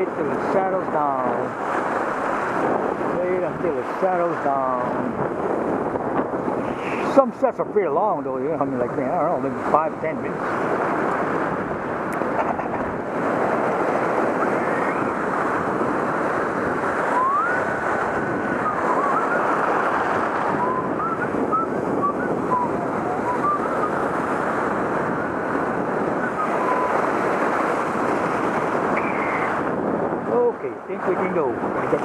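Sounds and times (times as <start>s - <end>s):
wind buffeting microphone: 0.0s - 32.0s
surf breaking on rocks: 8.9s - 32.0s
faint whistle-like notes: 20.6s - 23.9s, 26.2s - 27.0s.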